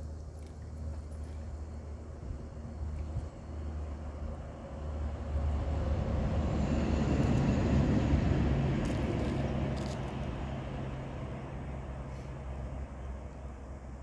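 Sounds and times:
passing vehicle motor rumble: 0.0s - 14.0s.

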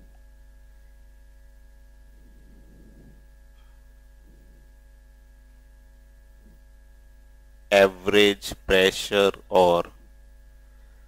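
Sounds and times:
low electrical mains hum: 0.0s - 11.0s
faint soft rustles: 2.0s - 5.0s.

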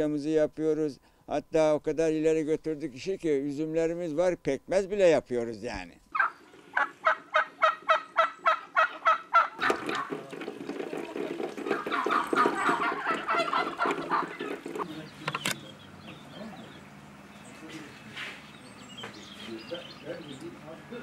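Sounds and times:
turkeys gobbling: 6.1s - 21.0s.

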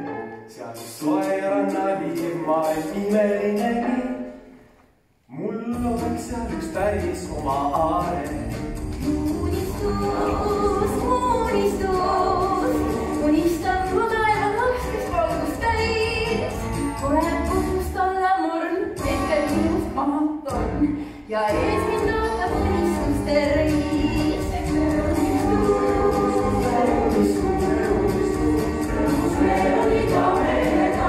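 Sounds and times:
woman singing: 9.2s - 28.5s
instrumental accompaniment: 19.0s - 31.0s.

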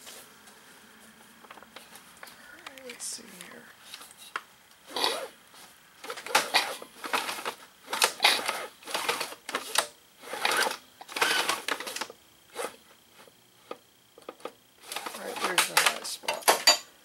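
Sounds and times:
tools clattering on metal workbench: 15.5s - 16.9s.

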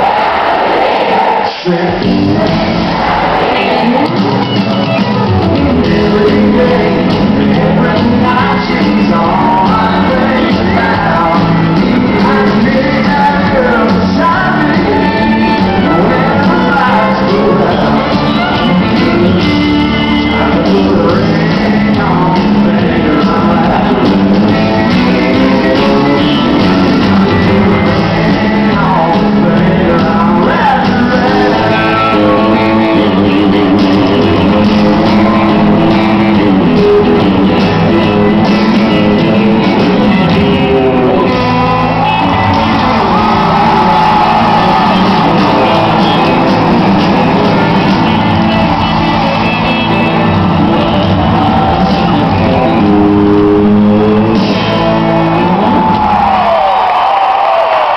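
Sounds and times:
live country band: 0.0s - 57.9s
person singing: 1.4s - 56.5s
electric guitar: 1.4s - 57.9s.

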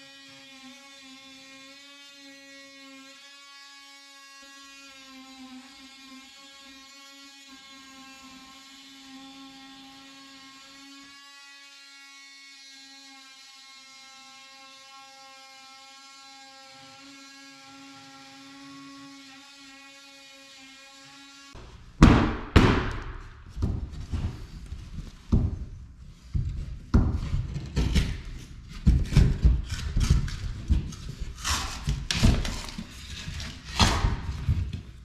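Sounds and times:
oscillating tool cutting drywall: 0.0s - 35.0s
loud thumps: 21.6s - 29.8s.

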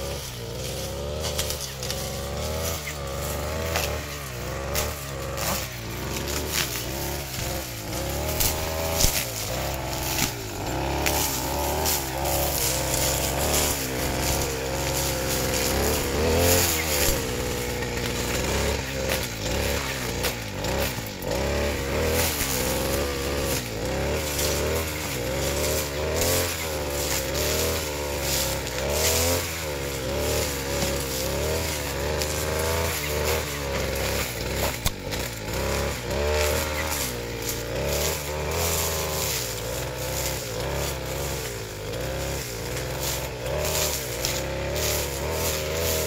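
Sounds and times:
brush cutter engine running: 0.0s - 46.0s.

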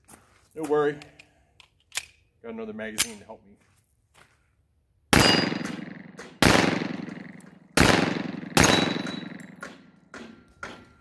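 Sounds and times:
pistol shots echoing: 5.1s - 10.3s.

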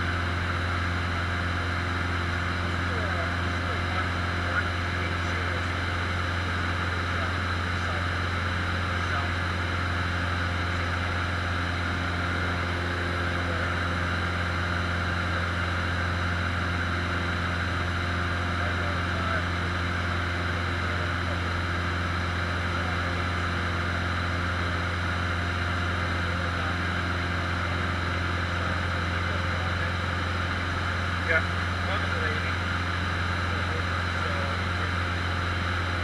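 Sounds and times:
airplane engine droning in flight: 0.0s - 36.0s.

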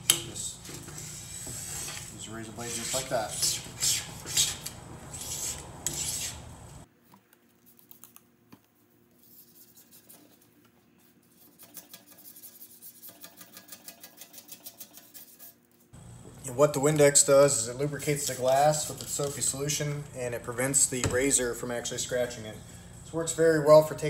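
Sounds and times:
razor blade scraping glass: 0.6s - 6.5s.

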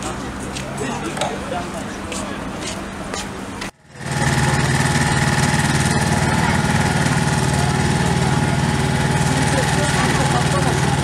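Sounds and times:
fire truck engine running: 3.7s - 11.0s.

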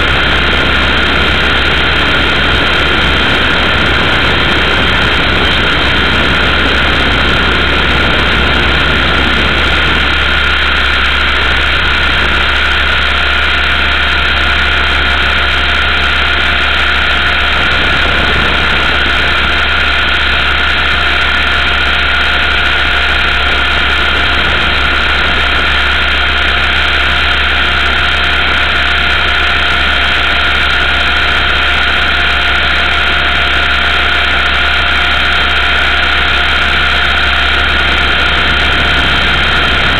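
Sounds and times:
rc helicopter motor whine: 0.0s - 39.9s.

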